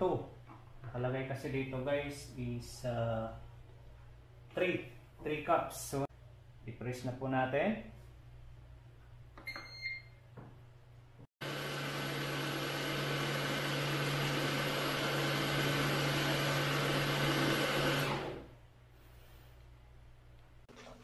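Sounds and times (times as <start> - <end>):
short beep: 9.4 - 10.2
coffee maker mechanical whir: 11.4 - 18.5.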